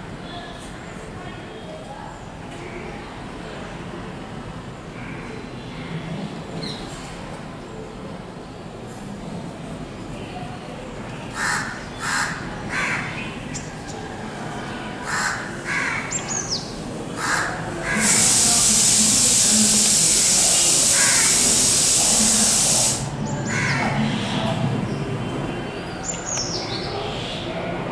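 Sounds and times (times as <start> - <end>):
harsh bird calls: 11.3 - 14.2, 15.0 - 18.4, 19.8 - 27.6
loud steady high hiss: 16.8 - 23.7.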